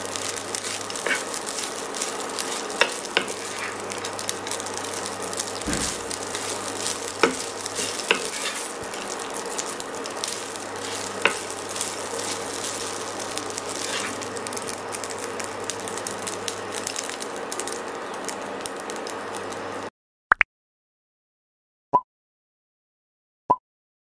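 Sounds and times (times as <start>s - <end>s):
wooden spatula stirring: 0.0s - 14.8s
rice sizzling in a pan: 0.0s - 19.9s.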